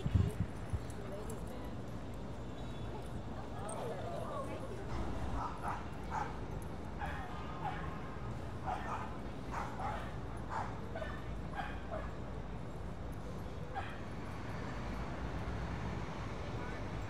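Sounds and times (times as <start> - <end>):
dogs barking and yipping: 8.6 - 12.2.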